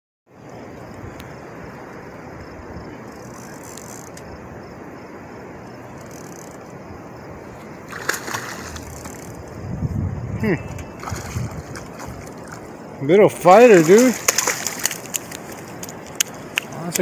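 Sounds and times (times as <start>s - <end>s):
river water rushing: 4.4s - 9.6s, 10.5s - 17.0s
water splashing: 7.4s - 9.6s, 10.4s - 17.0s.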